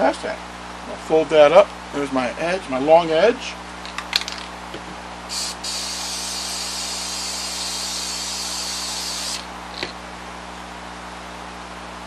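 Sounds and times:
aerosol spray hissing: 5.3 - 9.5.

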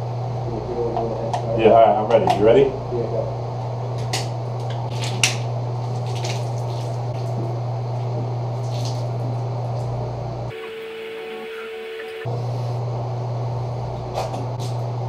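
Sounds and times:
steady low hum: 0.0 - 15.0
beer gushing and gulping: 8.5 - 9.9.

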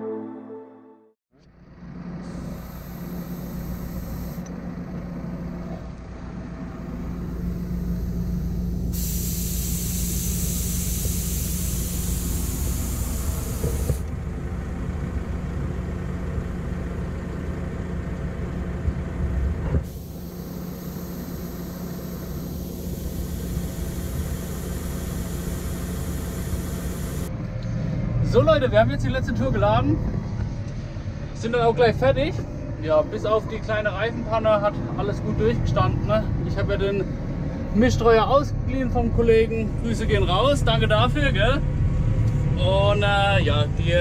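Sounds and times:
tractor engine running: 1.4 - 27.7
loud hiss: 7.2 - 14.0, 19.8 - 27.3.

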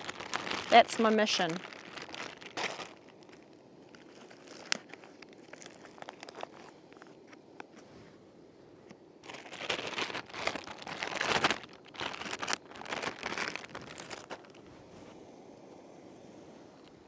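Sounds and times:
plastic bags crinkling: 0.0 - 7.3, 9.2 - 14.7.

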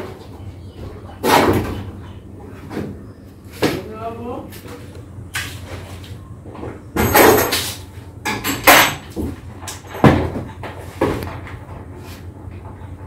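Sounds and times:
knocks and clatters: 7.0 - 13.0.

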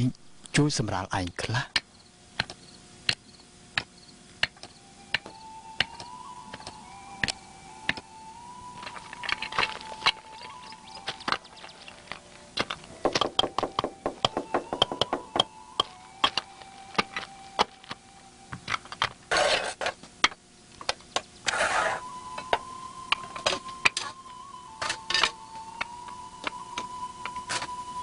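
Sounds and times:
faint steady high tone: 4.7 - 19.1, 21.7 - 28.0
hammering and brick knocks: 12.6 - 17.7.

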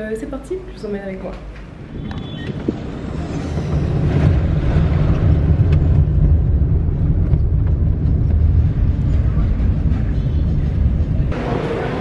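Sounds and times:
car engine and road rumble: 2.8 - 12.0.

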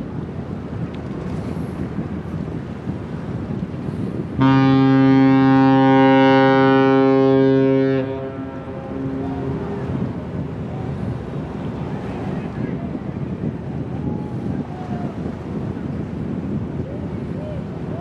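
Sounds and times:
ship's horn long blast: 4.2 - 10.6.

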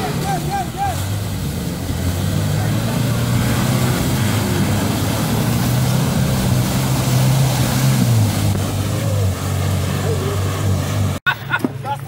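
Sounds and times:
truck engine running: 0.0 - 11.8
water splashing around wheels: 0.0 - 12.0.

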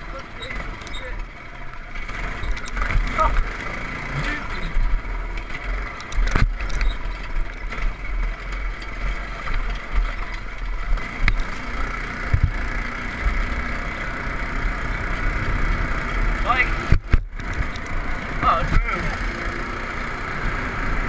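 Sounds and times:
frame rattling over rough ground: 0.0 - 19.6
go-kart engine running: 0.0 - 21.0
sharp knocks from bumps: 2.2 - 3.6, 12.2 - 12.6, 16.8 - 17.8.

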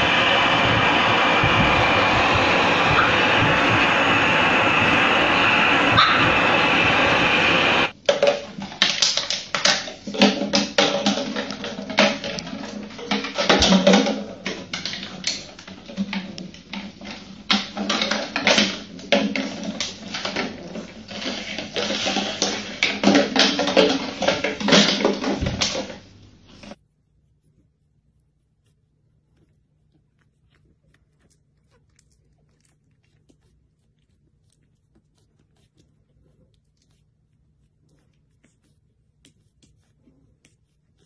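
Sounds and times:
plastic bottle rattling on tiles: 7.9 - 26.8.

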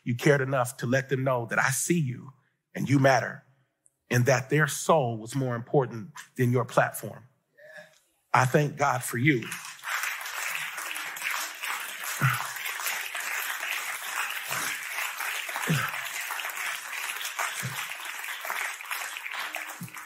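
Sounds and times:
audience applauding: 8.4 - 20.0.

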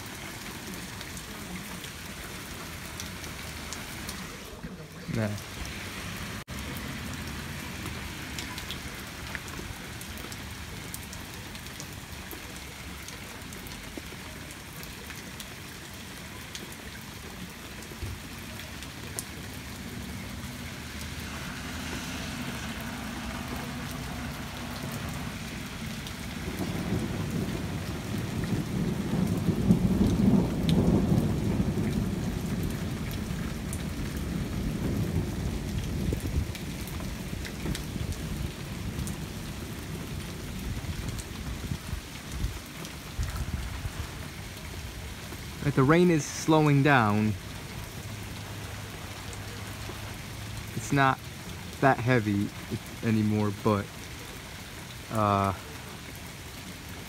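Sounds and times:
steady rain falling: 0.0 - 57.0
low rumble of thunder: 25.0 - 45.0.

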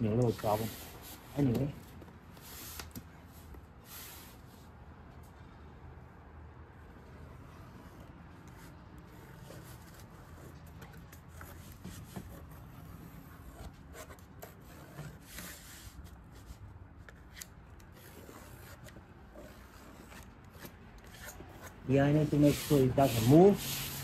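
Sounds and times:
pencil scratching: 7.2 - 16.6, 17.2 - 24.0.

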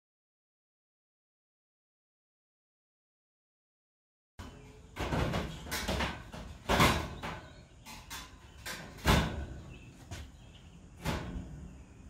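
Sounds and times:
metal filters sliding and clanking: 4.9 - 11.7.

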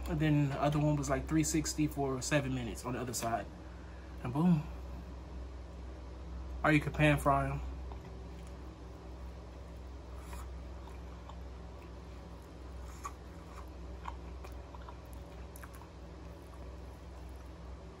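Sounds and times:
close chewing: 7.8 - 18.0.

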